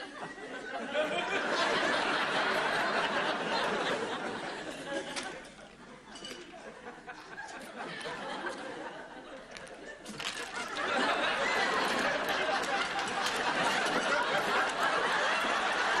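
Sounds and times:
studio audience laughing: 0.0s - 16.0s.

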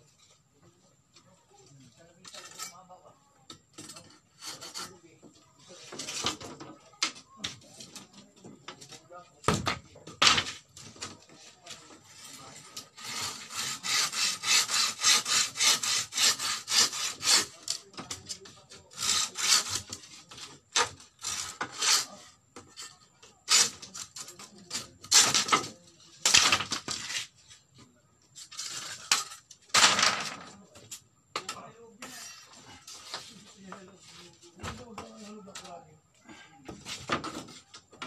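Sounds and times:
hand saw cutting bamboo: 4.1s - 5.0s, 12.1s - 22.4s, 23.5s - 27.3s, 28.4s - 29.4s.

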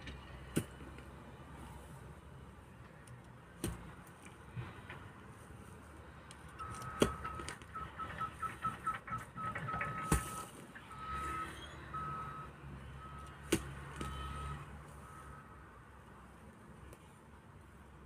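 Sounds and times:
pickaxe striking soil: 13.4s - 14.2s.

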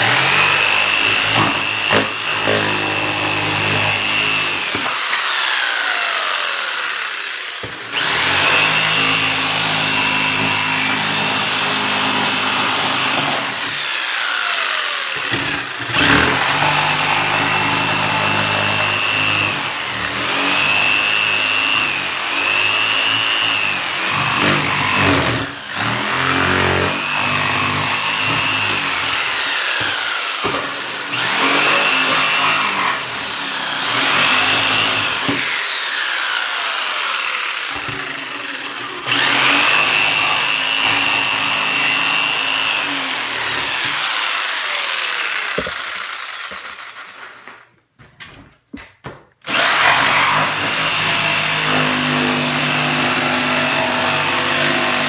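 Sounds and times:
jigsaw cutting plywood: 0.0s - 47.8s, 49.4s - 55.0s.

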